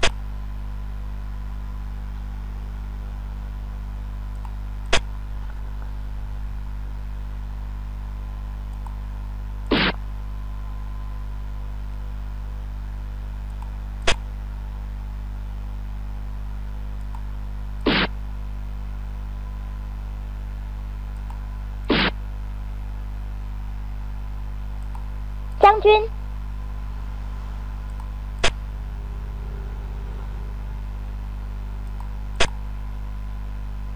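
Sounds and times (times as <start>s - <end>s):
steady low hum: 0.0s - 33.9s.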